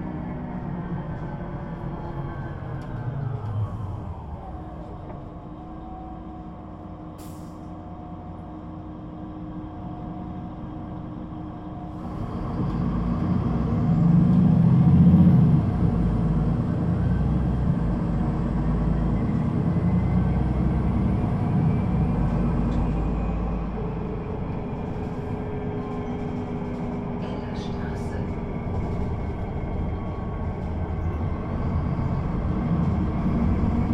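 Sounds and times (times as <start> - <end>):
bus diesel engine: 0.0 - 33.9.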